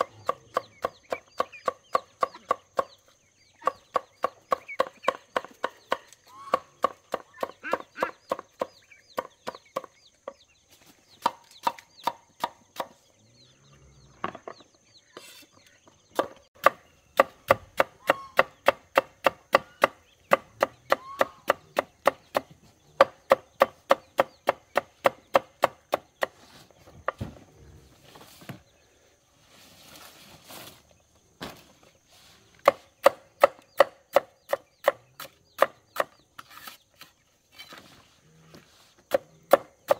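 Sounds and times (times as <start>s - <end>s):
chopping wood: 16.2s - 26.4s.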